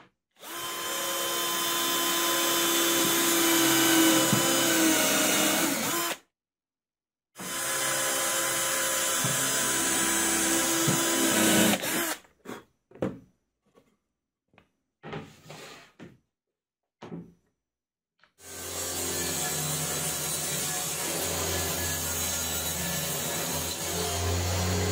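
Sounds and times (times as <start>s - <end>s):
cordless drill boring wood: 0.4s - 6.2s, 7.4s - 12.2s, 18.4s - 24.9s.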